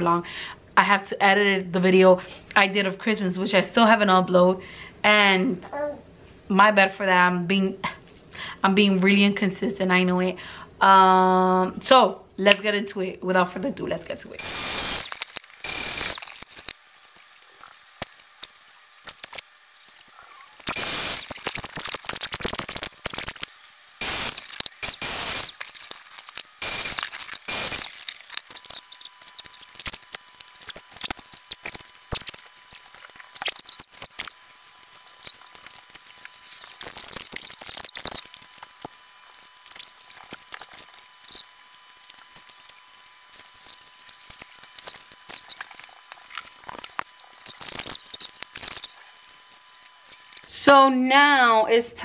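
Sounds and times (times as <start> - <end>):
loud noise bursts: 14.4 - 41.4
plastic packaging crinkling: 15.0 - 50.5
balloon squeaking and rubbing: 19.9 - 23.5, 24.3 - 38.9.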